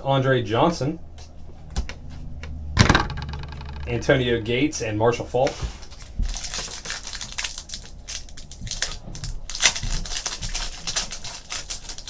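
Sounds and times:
foil wrapper crinkling and tearing: 0:05.8 - 0:12.0.

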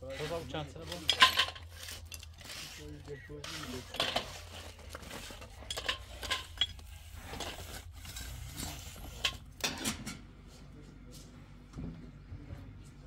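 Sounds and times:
hard objects clicking and scraping: 0:00.0 - 0:10.3.

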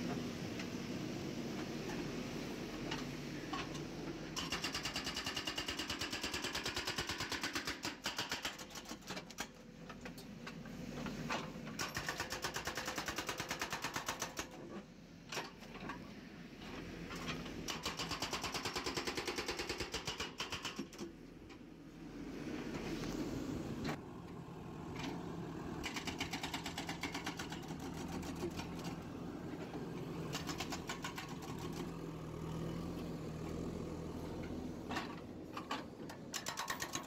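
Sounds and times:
diesel engine running: 0:21.9 - 0:36.3.

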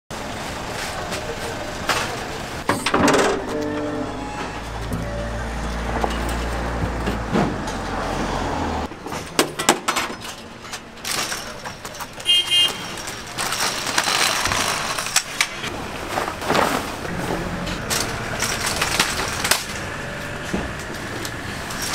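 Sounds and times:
hydraulic lift humming: 0:02.7 - 0:08.9, 0:17.1 - 0:21.9
metal frame clattering: 0:16.3 - 0:21.9.

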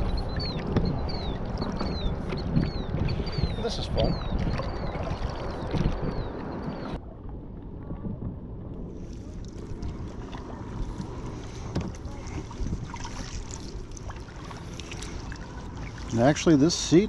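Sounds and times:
wind rumble on microphone: 0:00.0 - 0:16.3
water around hull: 0:00.0 - 0:17.0
light knocks and splashes: 0:09.4 - 0:16.5.

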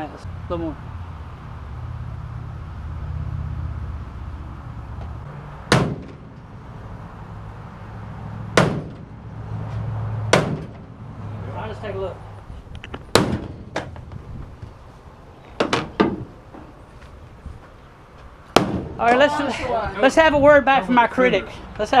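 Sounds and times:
sledgehammer striking metal bumper: 0:05.7 - 0:06.5, 0:08.6 - 0:09.2, 0:10.3 - 0:10.9, 0:13.1 - 0:13.9, 0:18.6 - 0:19.0.

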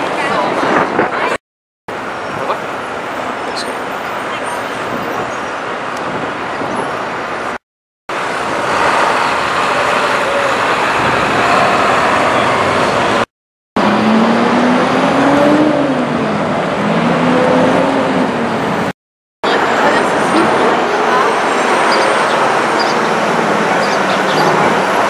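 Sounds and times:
passing cars and trucks: 0:00.0 - 0:25.0
engine note rising and falling: 0:08.2 - 0:25.0.

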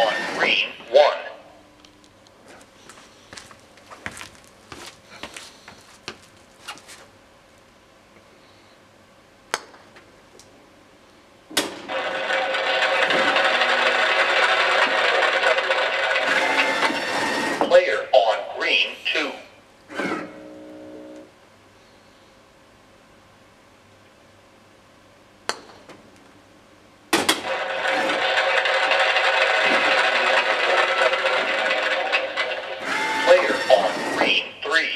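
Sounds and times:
recorded sound effect with voices: 0:00.0 - 0:01.6, 0:17.6 - 0:19.6, 0:33.2 - 0:34.9.

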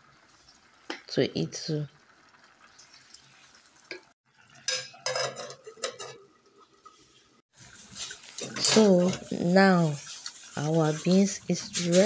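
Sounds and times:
utensil scraping cooking pot: 0:07.6 - 0:12.0.

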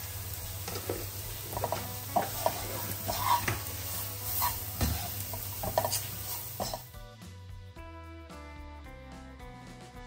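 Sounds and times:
oil sizzling: 0:00.0 - 0:07.0
wooden spatula scraping a pan: 0:00.6 - 0:06.9.

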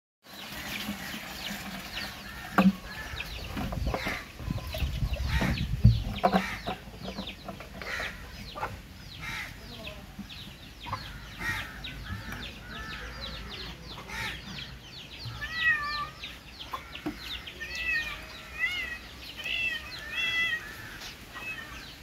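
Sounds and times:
chickens clucking: 0:00.4 - 0:22.0
dull knocks: 0:05.2 - 0:07.4.

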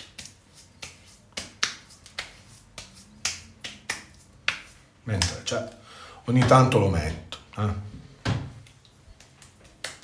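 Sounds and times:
hands slapping wet face: 0:00.0 - 0:05.8, 0:08.6 - 0:10.0.

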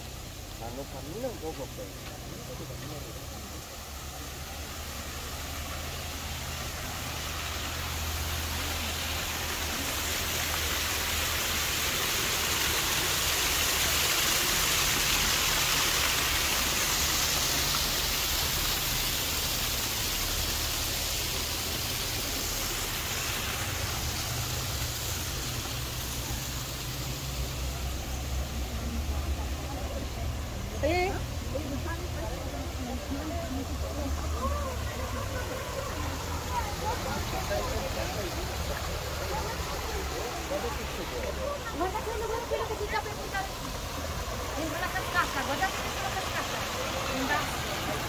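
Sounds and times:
small waterfall splashing: 0:00.0 - 0:48.0.

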